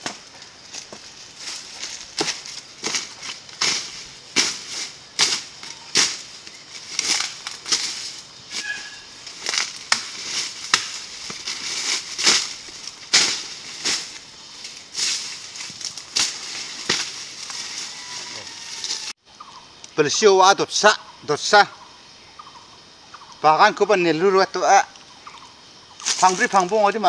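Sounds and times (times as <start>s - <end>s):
blade chopping dry fronds: 0.0s - 18.1s
dry leaves rustling: 0.0s - 19.6s, 26.0s - 27.0s.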